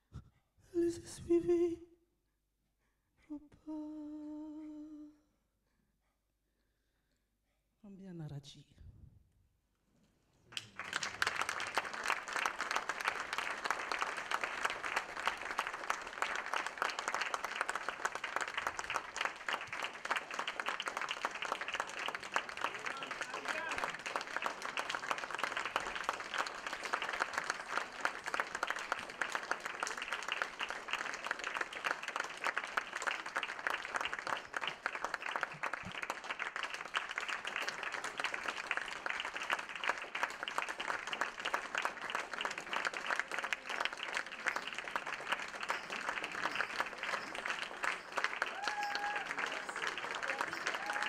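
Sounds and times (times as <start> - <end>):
audience applauding: 10.5 - 51.0.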